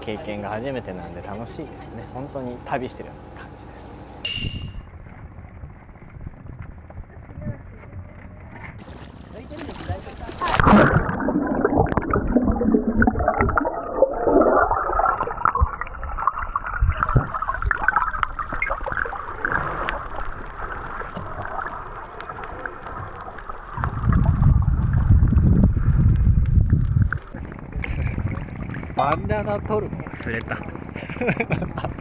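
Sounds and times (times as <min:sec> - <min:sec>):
underwater bubbling and gurgling: 0:08.8 - 0:32.0.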